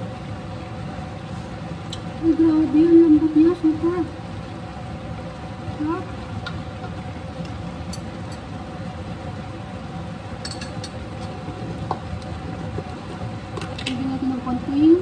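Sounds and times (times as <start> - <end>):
appliance humming: 0.0 - 15.0
spoon clinking on pan: 10.4 - 11.0.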